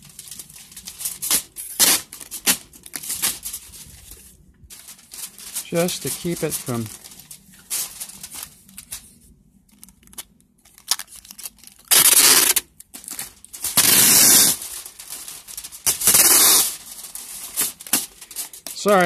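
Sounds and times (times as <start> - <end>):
tape ripping off roll: 0.0 - 3.6, 10.0 - 19.0
foil crinkling: 0.0 - 19.0.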